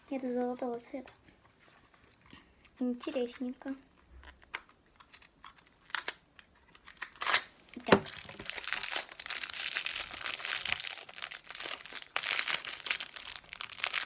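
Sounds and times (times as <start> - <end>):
plastic wrapper crinkling: 3.0 - 14.0
loud wrapper crackle: 4.3 - 14.0.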